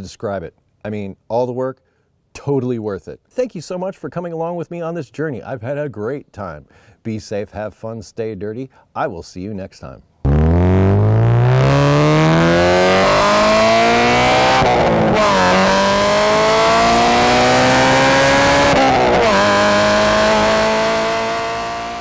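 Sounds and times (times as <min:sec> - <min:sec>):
car engine accelerating: 0:10.3 - 0:22.0.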